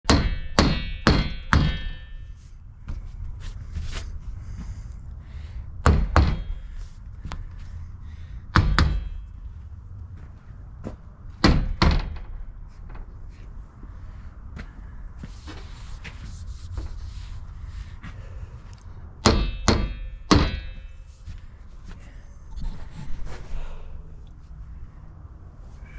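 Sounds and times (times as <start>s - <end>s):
sledgehammer striking metal frame: 0.0s - 2.6s, 5.8s - 6.8s, 8.5s - 9.5s, 11.4s - 13.1s, 19.2s - 21.2s.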